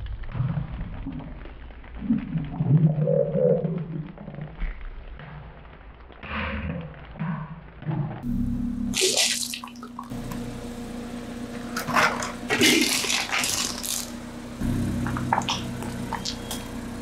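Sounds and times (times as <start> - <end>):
car engine idling: 10.1 - 17.0
piggy bank cracking and splintering: 12.5 - 14.2
lollipop crunching under tyre: 12.6 - 14.2.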